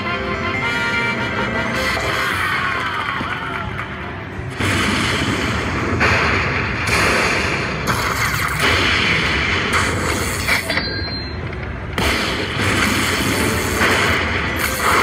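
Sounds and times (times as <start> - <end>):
slot machine win sound effects: 0.0 - 2.6.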